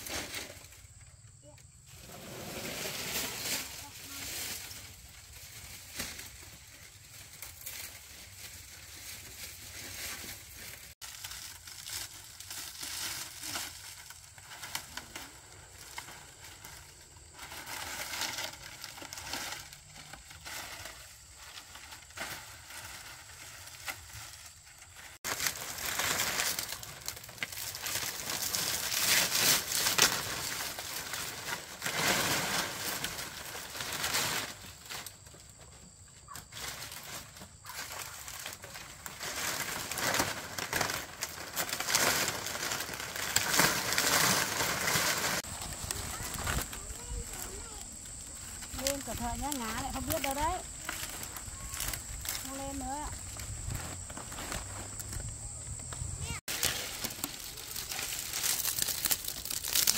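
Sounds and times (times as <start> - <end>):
rustling and scraping handling noise: 0.0 - 59.9.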